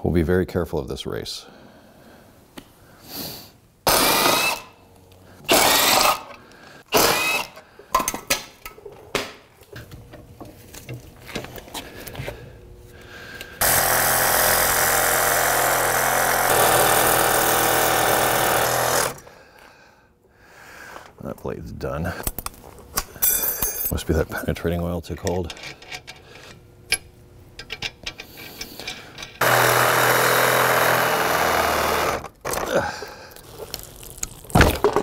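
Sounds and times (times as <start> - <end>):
impact wrench hammering: 29.4 - 32.3.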